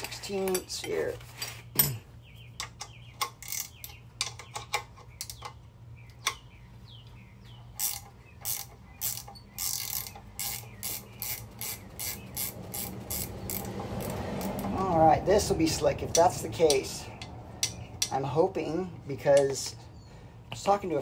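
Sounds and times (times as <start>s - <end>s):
ratcheting wrench clicking: 7.8s - 14.7s.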